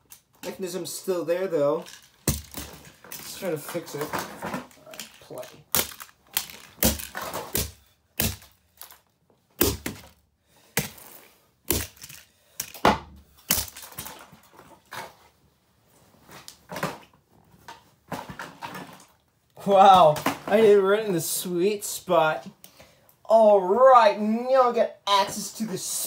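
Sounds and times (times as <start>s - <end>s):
plastic case cracking under blows: 2.0s - 9.0s.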